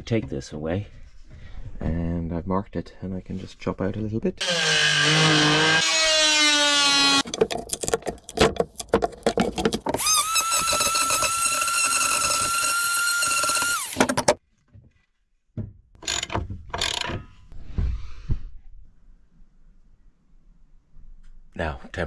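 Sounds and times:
multi-tool cutting timber: 4.4s - 14.4s.

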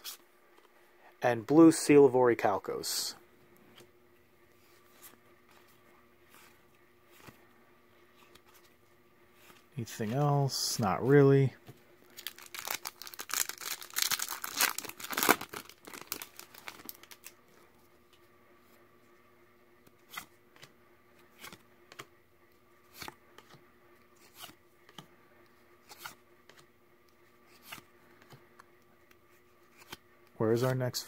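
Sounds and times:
foil pack tearing and crinkling: 12.2s - 17.3s.

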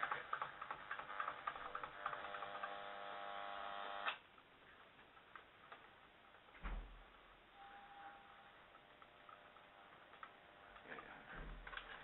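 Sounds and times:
radio buzzing tone: 2.1s - 4.2s
radio static crackling: 9.0s - 12.0s.

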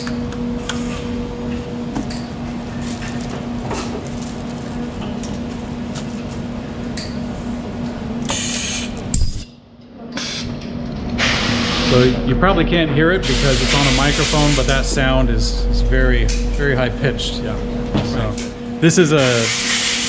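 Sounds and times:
low machine hum: 0.0s - 8.3s, 8.9s - 20.0s
high-pitched whine: 10.6s - 20.0s
air hiss: 13.2s - 14.9s.

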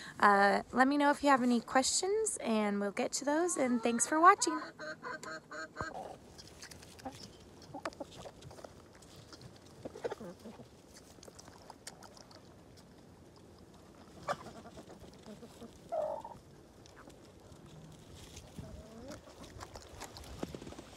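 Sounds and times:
hens clucking softly: 3.6s - 8.6s, 9.3s - 12.2s, 13.8s - 17.2s, 18.5s - 20.5s.

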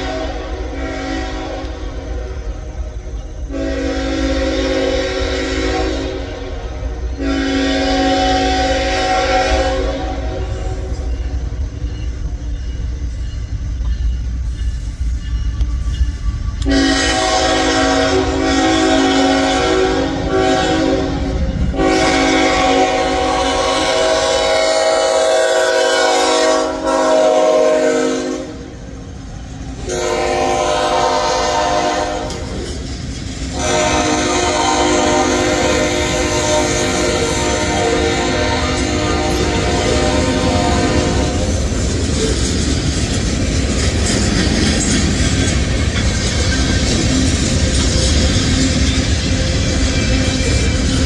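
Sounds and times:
locomotive air horn blasts: 0.0s - 2.4s, 3.5s - 11.0s, 16.6s - 28.8s, 29.8s - 32.6s, 33.5s - 41.6s
train rumbling: 0.0s - 51.0s.

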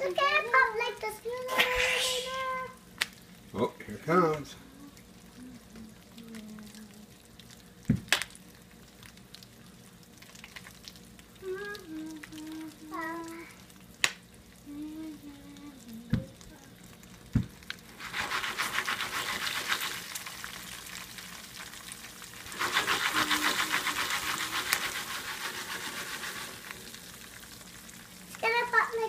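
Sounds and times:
popcorn pan shaken rattling: 18.0s - 27.0s.

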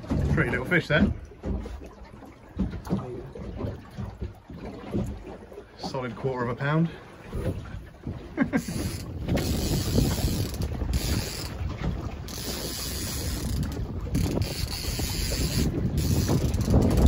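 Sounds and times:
wind rumbling on microphone: 7.2s - 17.0s
fishing reel whirring and clicking: 8.6s - 17.0s.

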